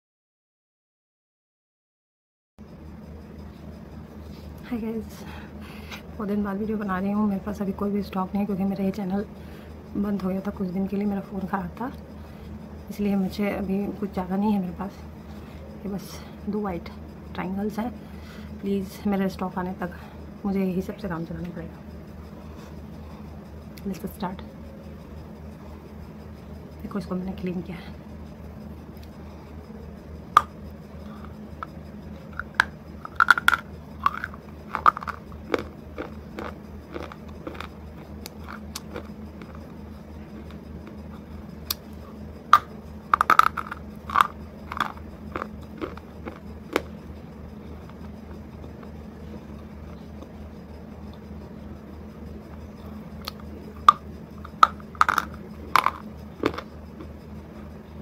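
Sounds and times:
steady low hum: 2.6s - 58.0s
crunchy biting and chewing: 30.4s - 50.4s, 52.8s - 57.8s.

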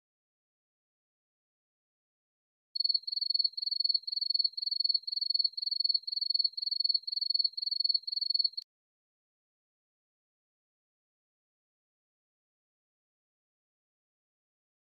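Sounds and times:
cricket chirping: 2.8s - 8.6s.

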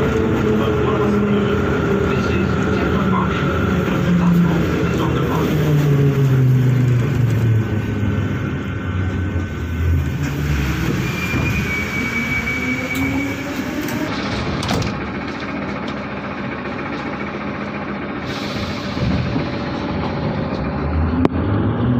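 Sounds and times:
traction motor whine: 0.0s - 21.9s
train running noise: 0.0s - 21.9s
high brake squeal: 10.5s - 14.1s.

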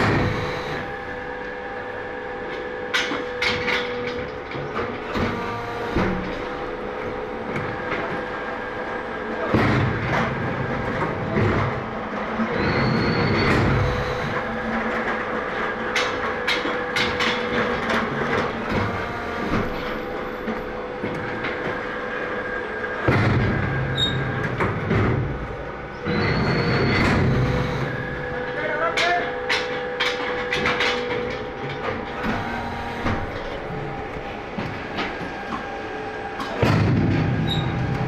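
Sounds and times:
steady machine hum: 0.0s - 38.0s
metallic clanks and rattles: 26.2s - 33.6s.

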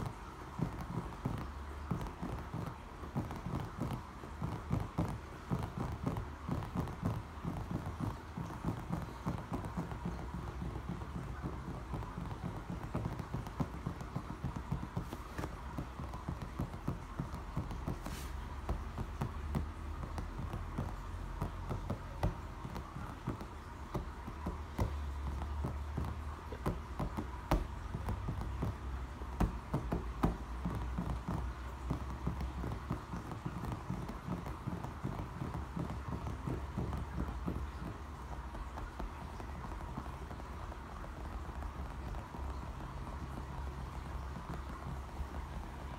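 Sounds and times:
fingertips tapping on brick: 0.0s - 45.9s.

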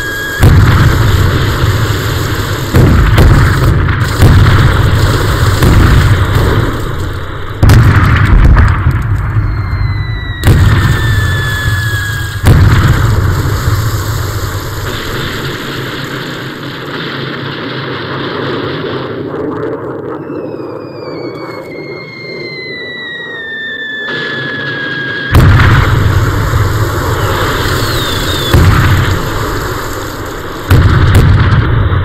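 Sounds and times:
thin falling whistle: 0.0s - 0.4s, 9.3s - 12.4s, 20.1s - 25.4s, 27.2s - 28.7s
heavy explosions with rumble: 0.0s - 32.0s.

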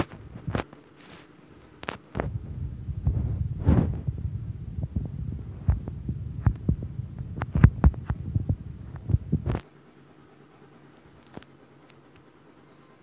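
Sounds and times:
low rumble: 2.2s - 9.6s.

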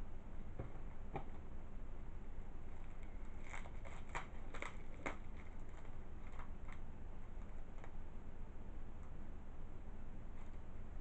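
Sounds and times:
plastic wrap crinkling: 2.8s - 6.8s.

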